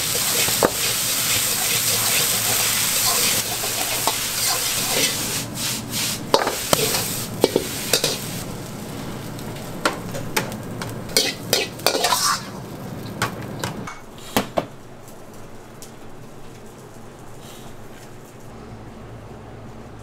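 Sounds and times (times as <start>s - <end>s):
food sizzling in pan: 0.0s - 13.9s.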